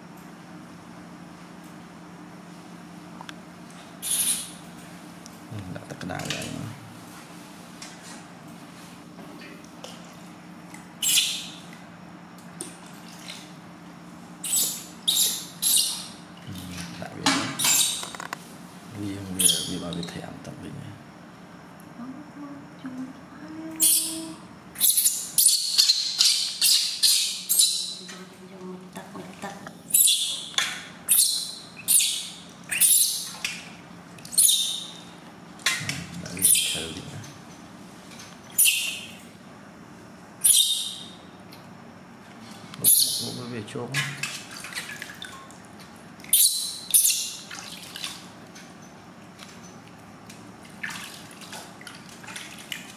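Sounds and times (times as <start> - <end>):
baby monkey screeching: 4.0 - 4.5, 11.0 - 11.6, 14.4 - 16.2, 17.6 - 18.1, 19.4 - 19.8, 23.8 - 24.2, 24.8 - 28.1, 29.9 - 33.4, 34.3 - 35.0, 36.4 - 36.9, 38.5 - 39.1, 40.4 - 41.2, 42.8 - 43.4, 46.3 - 47.4.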